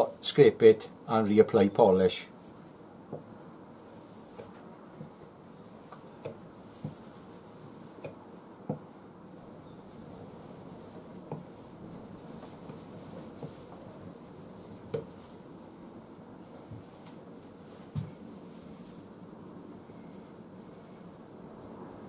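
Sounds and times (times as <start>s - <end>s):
knife stropping on leather: 5.6s - 8.1s.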